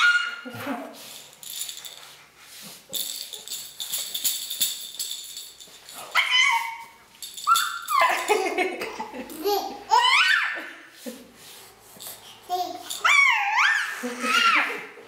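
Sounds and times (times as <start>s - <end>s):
toy ball jingling and rattling: 1.0s - 9.6s, 11.9s - 13.6s
baby squealing: 6.2s - 8.3s, 9.9s - 10.6s, 13.0s - 14.9s.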